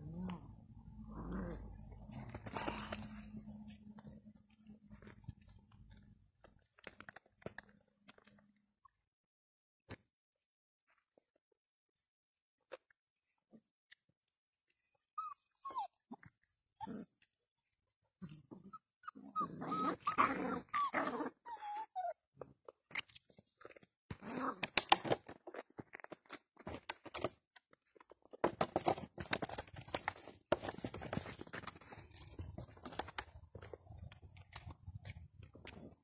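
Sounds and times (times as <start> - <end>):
puppies whimpering and yipping: 15.2 - 16.2, 18.6 - 22.2.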